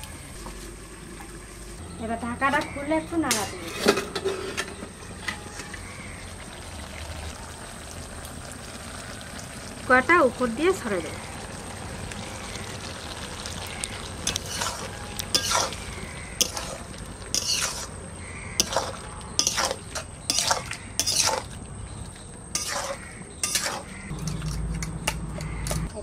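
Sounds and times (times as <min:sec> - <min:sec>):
curry simmering low sizzle: 0:00.0 - 0:26.0
metal spatula scraping a pan: 0:03.3 - 0:05.8, 0:14.2 - 0:21.6, 0:22.5 - 0:25.9.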